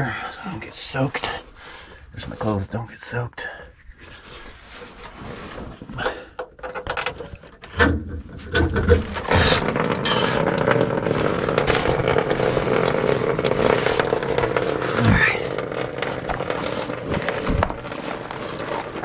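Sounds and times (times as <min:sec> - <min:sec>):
tool scraping and knocking: 0:06.5 - 0:19.0
gasoline gushing into pan: 0:08.4 - 0:19.0.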